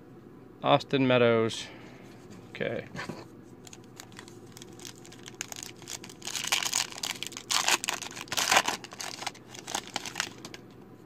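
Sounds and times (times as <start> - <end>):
wrapper crinkling and tearing: 3.6 - 10.6.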